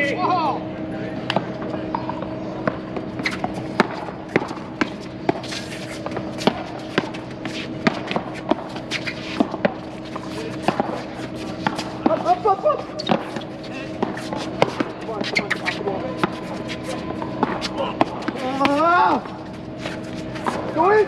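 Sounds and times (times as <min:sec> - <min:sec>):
steady tonal hum: 0:00.0 - 0:21.0
paddles hitting ball: 0:02.6 - 0:12.4, 0:13.0 - 0:18.9
shoe scuffs on hard court: 0:03.0 - 0:20.9.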